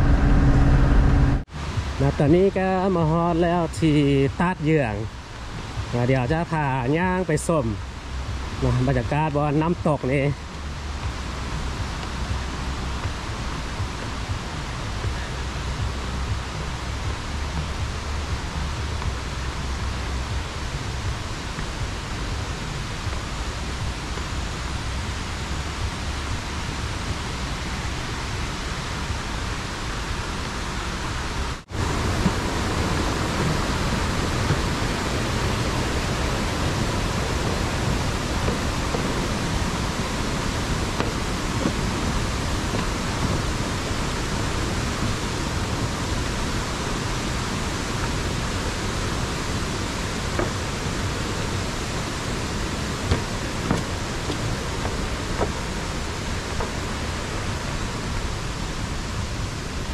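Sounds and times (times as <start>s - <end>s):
river water and waterfall rushing: 0.0s - 59.9s.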